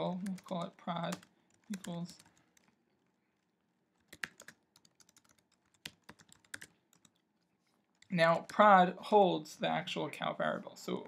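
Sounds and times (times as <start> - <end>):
soft keyboard keystrokes: 4.0 - 7.3.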